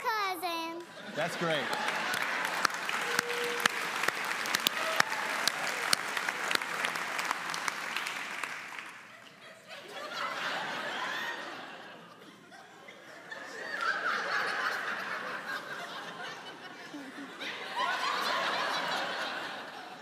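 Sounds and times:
studio audience laughing: 0:00.8 - 0:03.3, 0:09.1 - 0:20.0.

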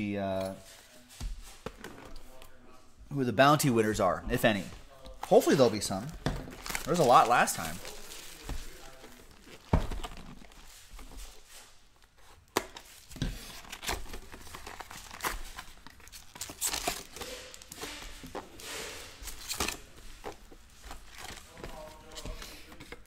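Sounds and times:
foil packs rustling: 0:04.3 - 0:23.0
plastic wrap and cardboard tearing: 0:05.2 - 0:22.7.

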